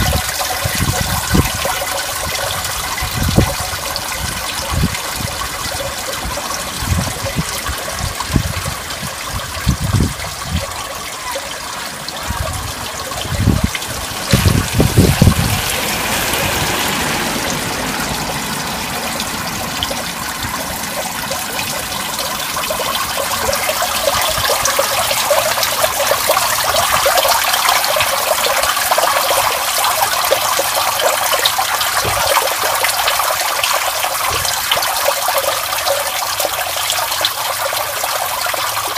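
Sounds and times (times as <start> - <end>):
water flowing into street drain: 0.0 - 38.9
low rumbling bumps: 12.3 - 24.7.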